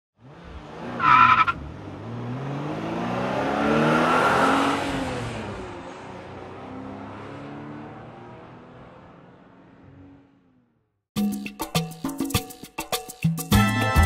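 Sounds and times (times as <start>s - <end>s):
car engine revving: 0.2s - 10.8s.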